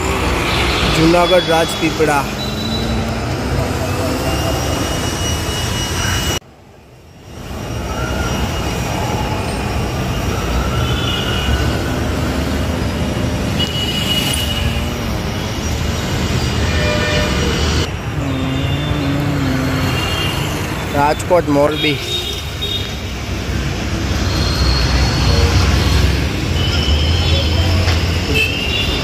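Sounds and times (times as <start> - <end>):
bus and scooter engines running: 0.0 - 29.0
road traffic rumble: 0.0 - 29.0
high squealing tones: 0.3 - 6.4.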